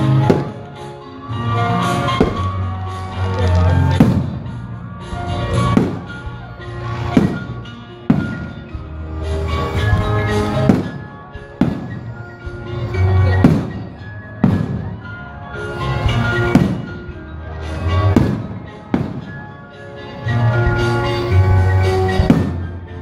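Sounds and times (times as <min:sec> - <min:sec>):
fireworks bangs: 0:00.0 - 0:00.7, 0:02.0 - 0:04.6, 0:05.4 - 0:08.8, 0:09.4 - 0:12.4, 0:13.2 - 0:15.2, 0:16.0 - 0:17.1, 0:17.8 - 0:19.5, 0:21.6 - 0:22.8
loud music: 0:00.0 - 0:23.0.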